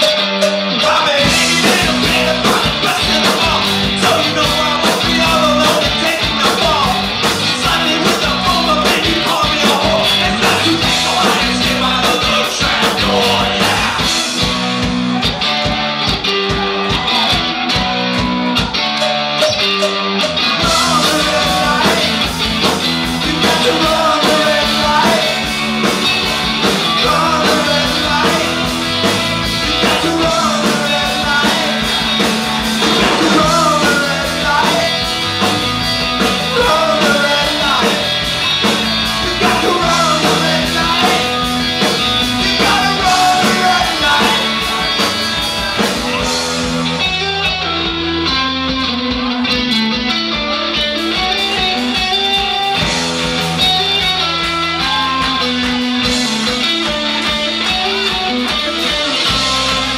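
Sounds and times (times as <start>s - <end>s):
man singing lead vocals: 0.0s - 14.9s, 20.4s - 46.4s
drum kit: 0.0s - 59.9s
electric bass: 0.0s - 59.9s
electric guitar: 0.0s - 59.9s.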